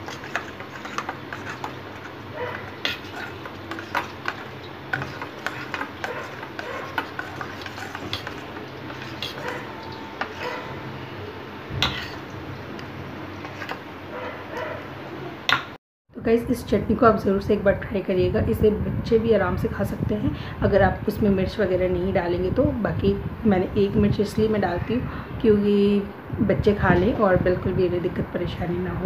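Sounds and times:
spoon stirring in metal bowl: 0.0s - 11.0s, 11.7s - 14.8s
metal spoon clinking on bowl: 5.0s - 10.8s.

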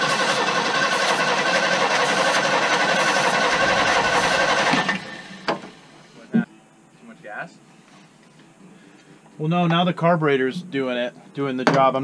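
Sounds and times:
starter motor cranking: 0.0s - 6.0s.

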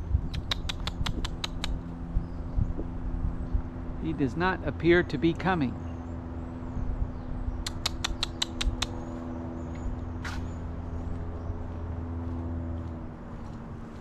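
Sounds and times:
low mechanical hum: 0.0s - 14.0s
sharp mouth clicks: 0.2s - 1.9s, 7.6s - 9.0s.

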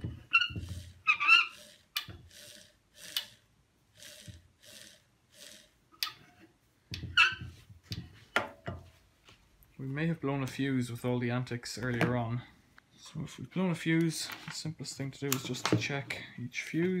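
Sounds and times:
dial scraping: 0.0s - 7.5s.

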